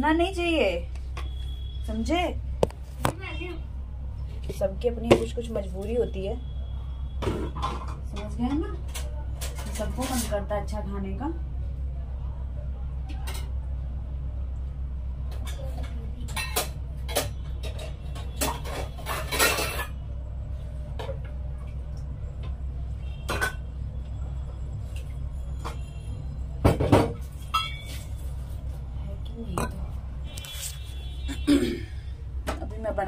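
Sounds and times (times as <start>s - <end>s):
steady low hum: 10.4s - 33.0s
dishes and utensils clinking: 15.3s - 20.0s, 23.2s - 23.7s, 26.7s - 28.3s, 29.5s - 29.9s.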